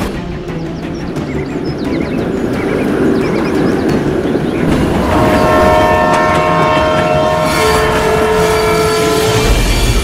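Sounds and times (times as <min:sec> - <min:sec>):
train rumbling: 0:00.0 - 0:10.0
train horn chord: 0:04.7 - 0:10.0.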